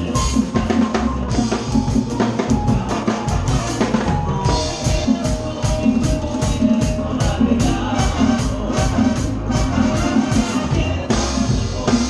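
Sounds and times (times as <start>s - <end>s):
drum kit beat: 0.0s - 12.0s
live band playing: 0.0s - 12.0s.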